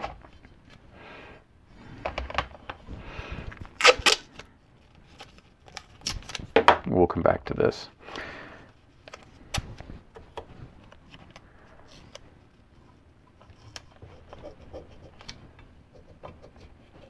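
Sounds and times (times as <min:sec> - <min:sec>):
tape handling taps and rustles: 0:09.0 - 0:12.2.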